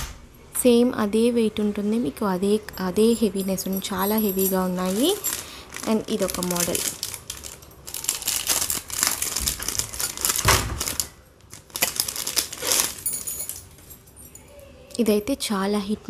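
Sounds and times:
metal bangles ringing: 2.5s - 8.6s, 12.4s - 14.6s
plastic wrapping crinkling: 3.3s - 14.3s.

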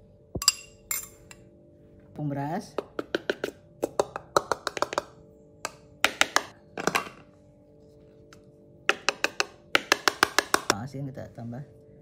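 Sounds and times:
spoon tapping a bowl: 0.4s - 1.4s, 2.8s - 7.2s, 8.9s - 10.8s.

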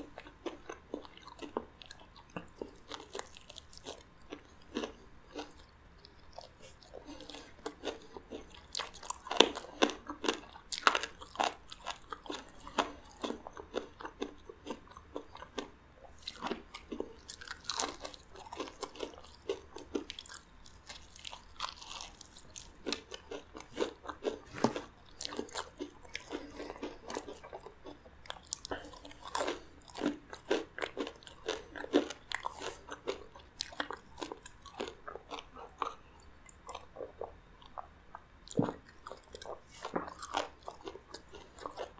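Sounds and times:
crispy fried chicken crunching: 0.0s - 5.6s, 6.4s - 36.0s, 38.5s - 41.9s
chewing: 0.0s - 41.9s.

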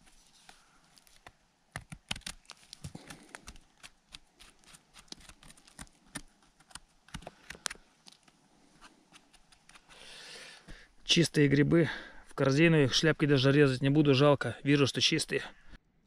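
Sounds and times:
knife scraping mushroom stem: 2.0s - 10.0s.

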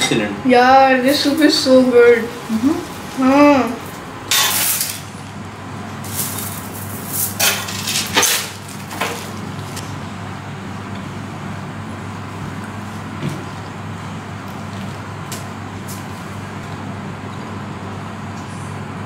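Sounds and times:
steady low hum: 0.0s - 19.0s
crinkly rustles: 6.0s - 9.8s.

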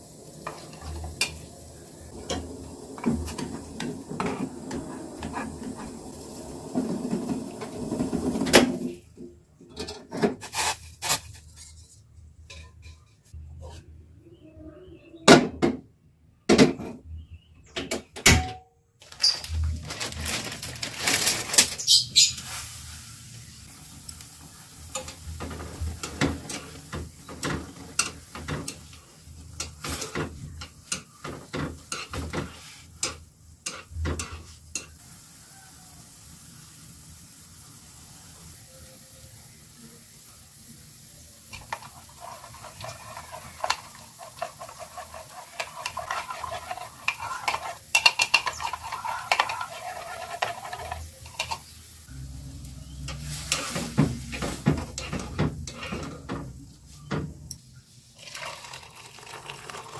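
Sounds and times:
pan clanking on stove grate: 41.5s - 51.7s
metal chopsticks stirring in wok: 41.5s - 51.8s
spoon scraping ceramic bowl: 41.6s - 51.7s.

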